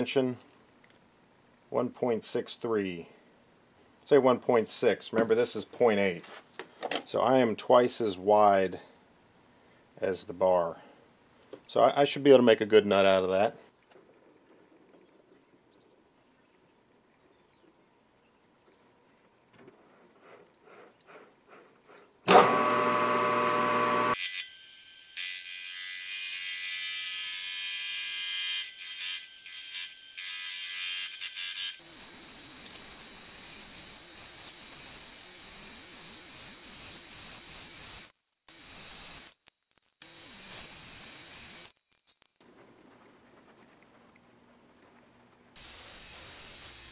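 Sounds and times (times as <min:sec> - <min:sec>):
metal lathe cutting steel: 0:22.3 - 0:24.2, 0:45.6 - 0:46.9.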